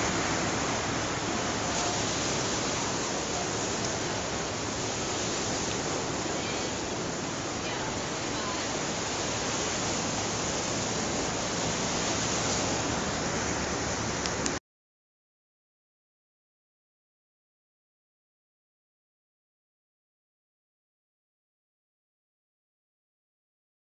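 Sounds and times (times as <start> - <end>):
steady outdoor rushing noise: 0.0 - 14.6.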